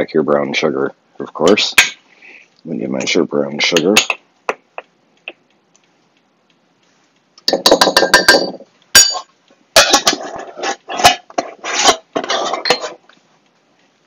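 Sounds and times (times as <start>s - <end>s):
measuring cup scraping in glass jar: 10.4s - 13.0s.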